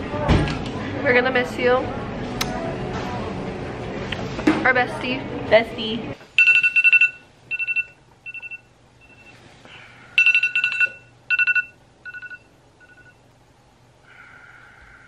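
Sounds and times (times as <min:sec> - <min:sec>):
smartphone alarm beeping: 0:06.4 - 0:09.4, 0:10.2 - 0:13.2.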